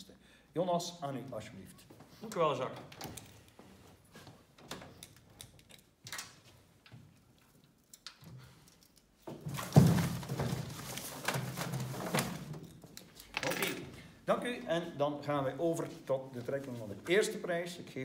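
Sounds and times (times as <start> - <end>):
hollow rustling and rummaging: 6.6 - 13.8.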